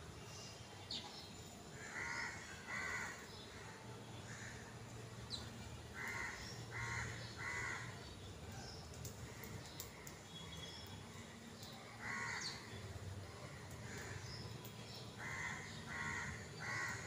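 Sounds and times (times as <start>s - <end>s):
crow cawing: 1.8s - 3.2s, 6.0s - 8.0s, 12.0s - 12.6s, 15.2s - 17.0s
small birds chirping: 3.0s - 17.0s.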